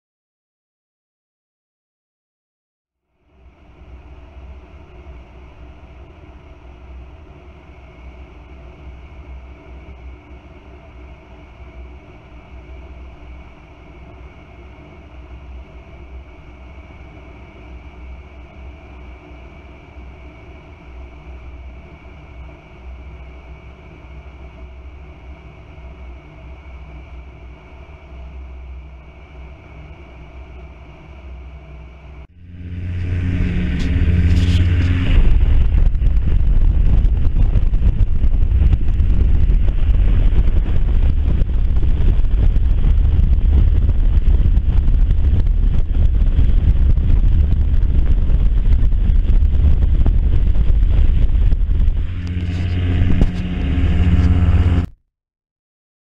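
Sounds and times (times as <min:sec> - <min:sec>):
light aircraft engine droning: 0:03.2 - 0:54.9
wind rushing over microphone: 0:32.4 - 0:54.9.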